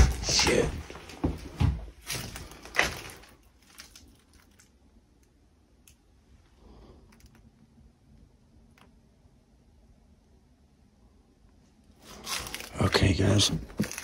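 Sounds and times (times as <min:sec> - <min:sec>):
heavy footsteps: 0:00.0 - 0:03.3, 0:13.4 - 0:14.0.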